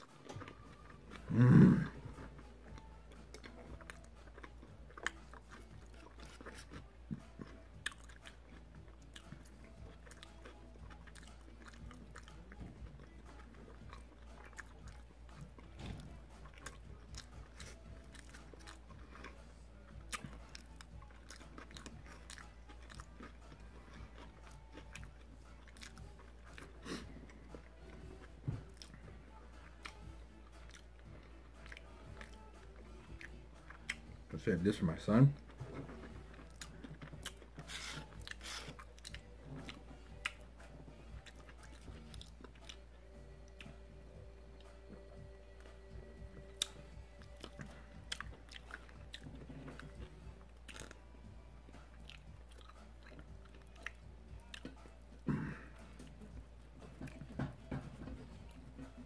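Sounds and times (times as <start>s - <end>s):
close chewing: 0.0s - 59.0s.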